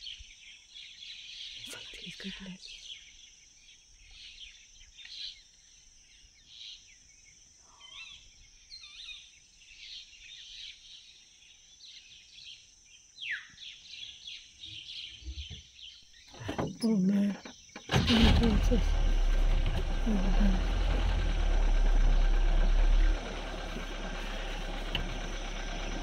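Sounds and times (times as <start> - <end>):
birds chirping: 0.0 - 6.8, 13.2 - 26.0.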